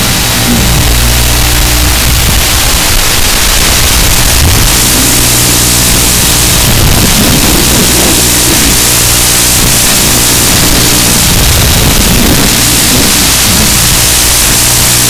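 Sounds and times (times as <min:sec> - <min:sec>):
loud static hiss: 0:00.0 - 0:15.0
low buzzing hum: 0:00.0 - 0:15.0.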